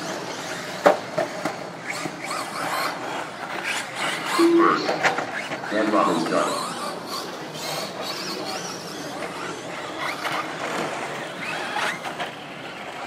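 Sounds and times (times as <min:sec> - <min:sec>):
electric rc truck motors whining: 0:00.0 - 0:13.0.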